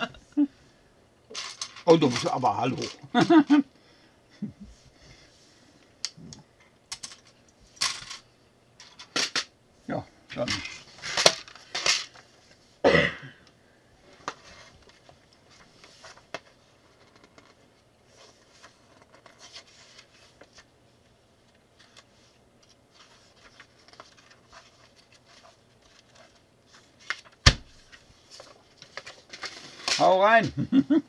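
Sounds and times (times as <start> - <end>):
paper booklet rustling: 14.2 - 20.7, 21.4 - 30.2.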